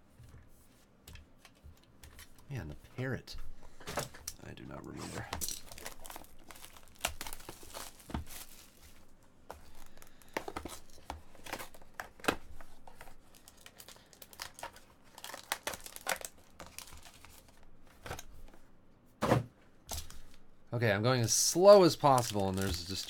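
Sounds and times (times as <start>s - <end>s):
plastic shrink wrap crinkling: 5.4s - 12.0s, 12.8s - 17.7s, 21.6s - 23.0s.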